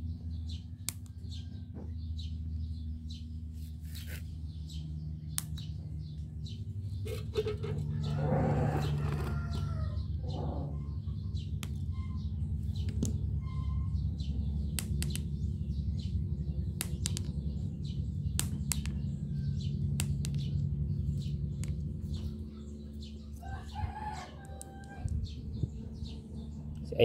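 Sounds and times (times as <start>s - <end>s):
steady low hum: 0.0s - 27.0s
sharp clicks: 14.7s - 15.3s, 16.8s - 17.4s, 18.3s - 19.0s.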